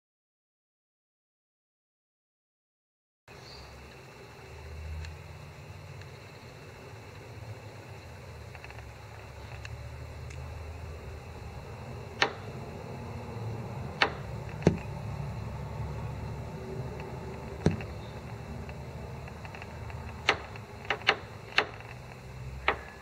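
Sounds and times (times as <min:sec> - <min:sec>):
low steady hum: 0:03.3 - 0:23.0
bird hammering with its bill: 0:17.5 - 0:18.3.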